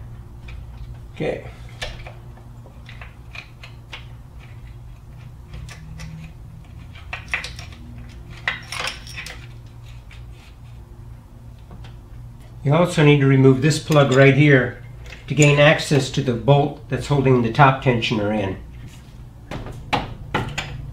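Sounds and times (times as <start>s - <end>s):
steady low hum: 0.0s - 20.9s
metallic clinks of engine parts: 6.9s - 9.6s.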